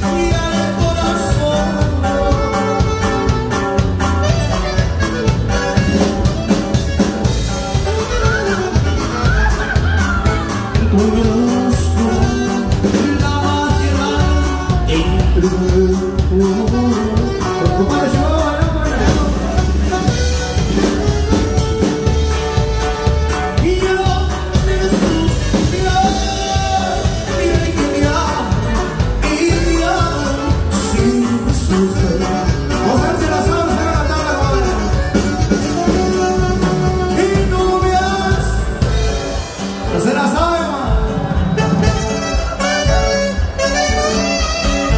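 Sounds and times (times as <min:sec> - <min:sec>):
man singing: 0:00.0 - 0:04.7, 0:07.7 - 0:43.0
button accordion: 0:00.0 - 0:40.0, 0:41.0 - 0:44.9
bajo sexto and bass: 0:00.0 - 0:44.9
saxophone: 0:02.1 - 0:12.6, 0:14.0 - 0:27.3, 0:34.4 - 0:39.2, 0:41.3 - 0:44.9.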